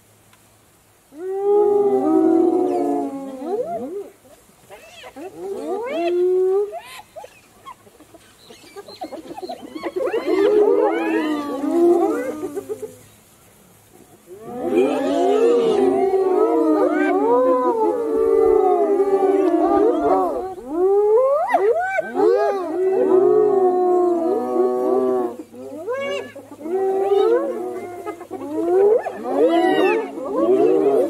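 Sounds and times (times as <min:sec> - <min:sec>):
hyenas calling: 0:14.4 - 0:31.0.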